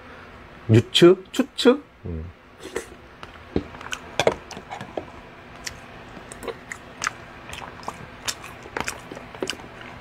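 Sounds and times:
man chewing with mouth clicks: 0:03.6 - 0:10.0.

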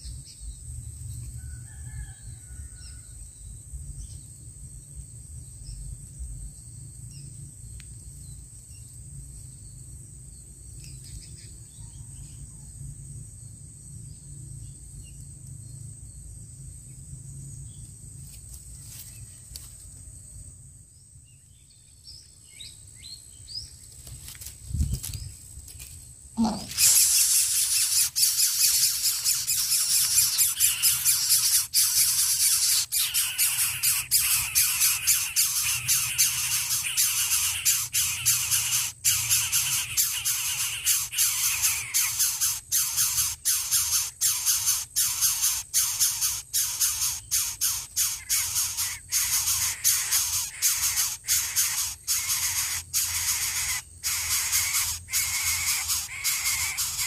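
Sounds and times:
nestlings hissing: 0:26.4 - 0:57.0.

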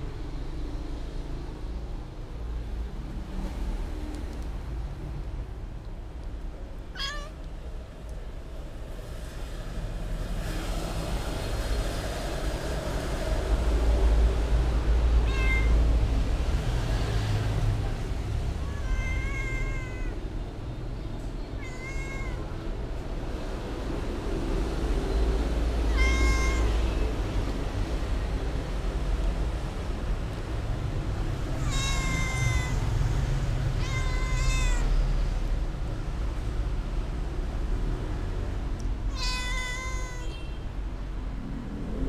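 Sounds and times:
cat meowing: 0:06.9 - 0:07.5, 0:15.2 - 0:15.9, 0:18.5 - 0:20.3, 0:21.5 - 0:22.7, 0:25.7 - 0:27.3, 0:31.5 - 0:35.2, 0:39.1 - 0:40.6.

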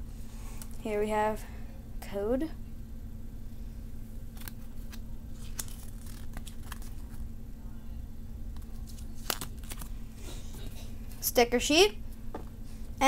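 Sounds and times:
steady low hum: 0:00.0 - 0:13.0
cardboard card crinkling: 0:04.3 - 0:07.3, 0:08.6 - 0:10.0.

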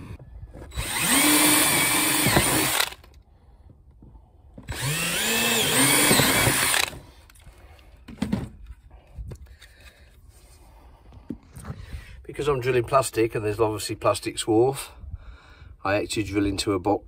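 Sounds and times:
cordless drill boring plastic: 0:00.7 - 0:03.2, 0:04.6 - 0:07.6.

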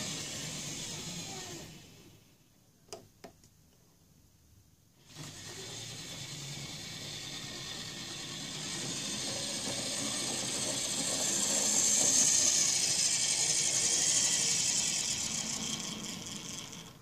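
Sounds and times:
model train rumbling on track: 0:05.0 - 0:17.0.

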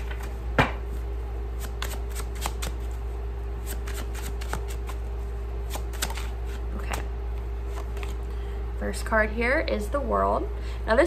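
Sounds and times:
cards being shuffled: 0:01.5 - 0:08.4.

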